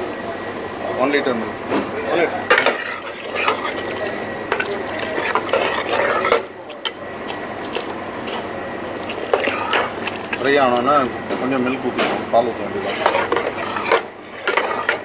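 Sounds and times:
spatula scraping in pot: 2.5s - 10.9s, 12.8s - 15.0s
milk pouring: 2.8s - 11.1s.

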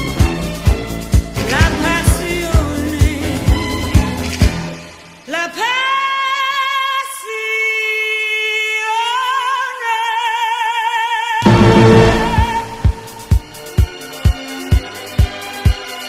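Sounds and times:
woman singing with vibrato: 5.3s - 13.3s
band with drums: 11.4s - 14.0s.

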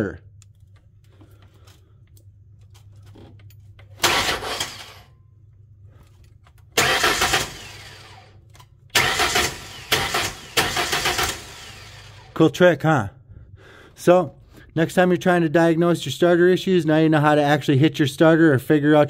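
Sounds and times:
starter motor cranking engine: 3.9s - 5.1s, 6.6s - 12.5s.

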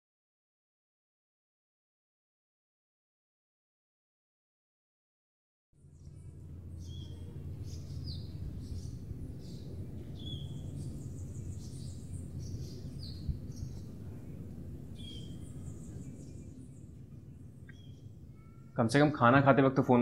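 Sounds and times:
small birds chirping: 5.8s - 19.3s
low background hum: 5.8s - 20.0s.

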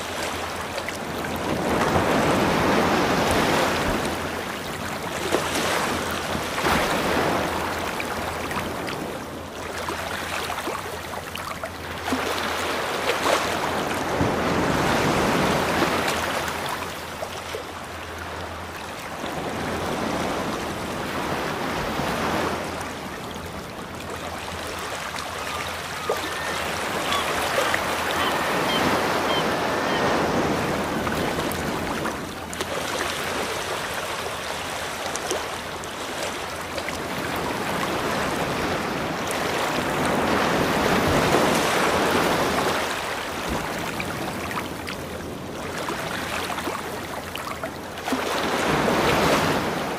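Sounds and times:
ocean surf washing in: 0.0s - 9.4s, 26.3s - 32.3s.

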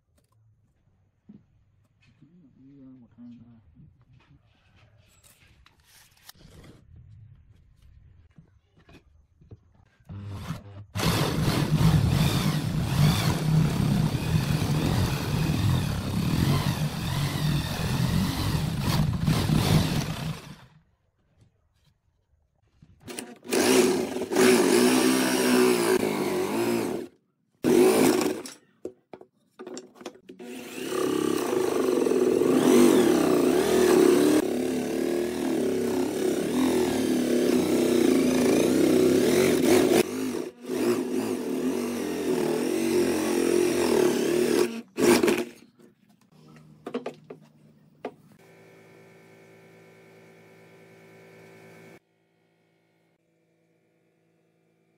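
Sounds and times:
electric drill boring wood: 10.1s - 20.8s, 23.0s - 28.5s, 30.4s - 45.6s.

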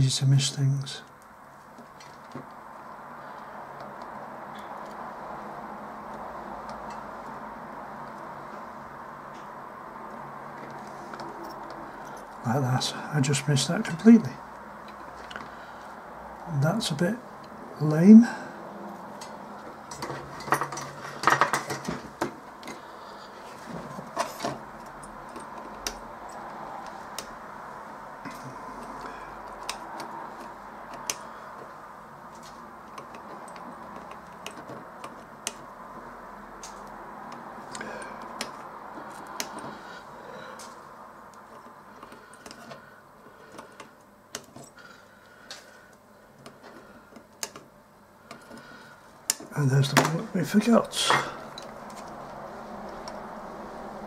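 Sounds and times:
metal tools clinking: 51.0s - 52.2s.

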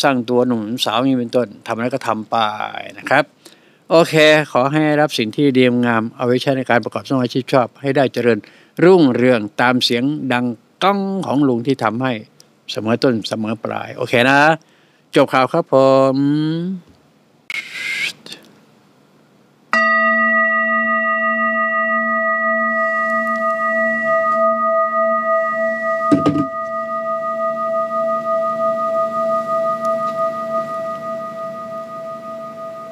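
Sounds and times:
singing bowl ringing: 19.7s - 32.9s.

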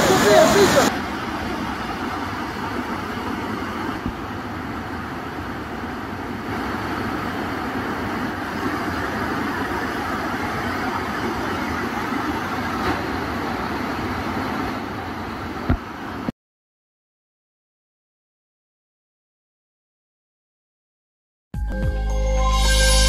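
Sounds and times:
floodwater rushing over weir: 0.0s - 16.3s.

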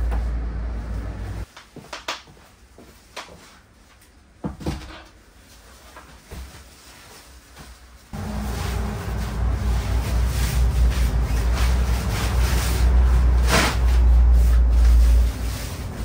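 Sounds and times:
low steady rumble: 0.0s - 1.5s, 8.2s - 16.0s.

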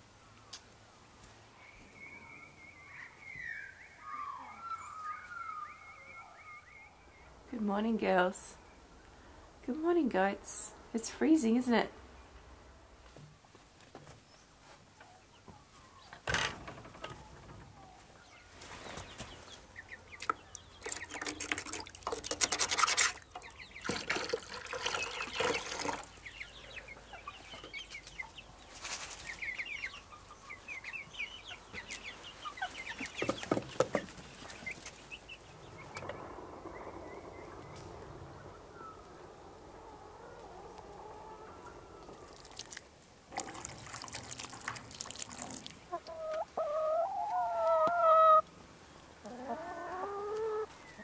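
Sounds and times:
chickens clucking: 15.0s - 42.5s, 45.4s - 51.0s
bucket and kettle clattering: 20.8s - 26.1s
water pouring into a bowl: 23.8s - 26.1s, 42.3s - 45.8s.

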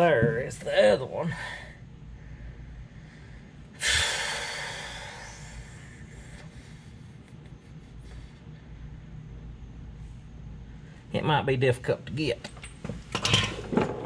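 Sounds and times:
man breathing out heavily: 1.3s - 7.2s.

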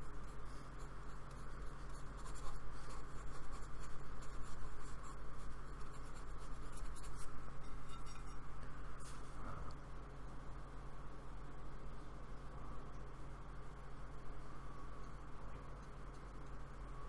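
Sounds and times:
paintbrush scratchy strokes: 0.0s - 9.5s
steady low hum: 0.0s - 17.0s.

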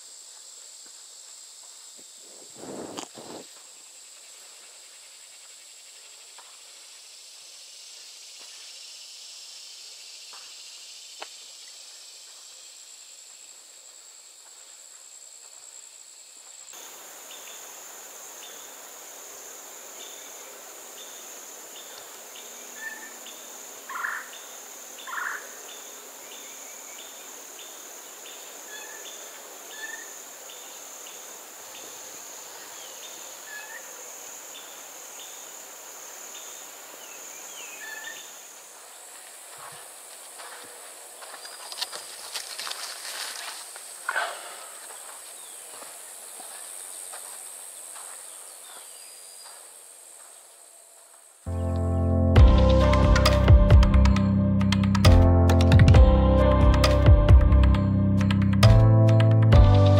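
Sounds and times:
insect chorus drone: 0.0s - 59.2s.

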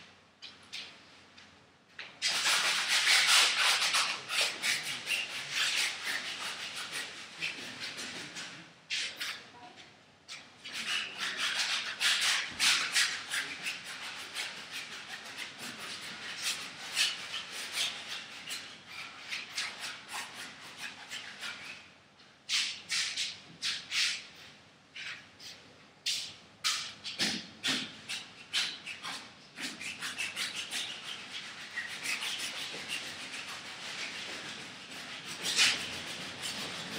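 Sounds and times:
paintbrush scrubbing on canvas: 2.2s - 9.4s, 10.6s - 21.8s, 27.6s - 36.9s.

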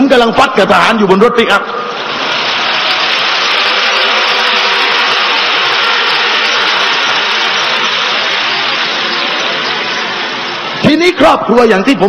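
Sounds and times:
crowd applauding and cheering: 2.0s - 10.8s.

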